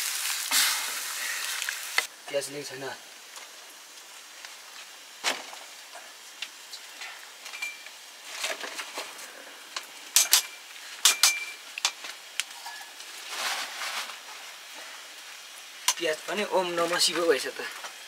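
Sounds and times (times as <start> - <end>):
rustling: 3.3 - 9.4, 12.0 - 15.4
glass bottles clinking: 7.5 - 7.9, 10.2 - 11.6, 12.5 - 13.0.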